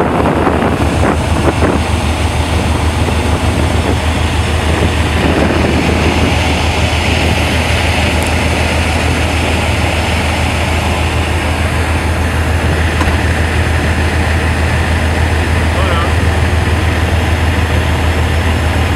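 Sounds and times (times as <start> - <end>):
boat engine drone: 0.0 - 18.9
wind and water rushing: 0.0 - 18.9.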